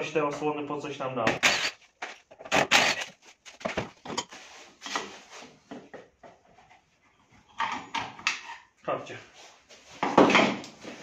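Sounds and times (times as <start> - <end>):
tools clicking and knocking: 7.5 - 8.7.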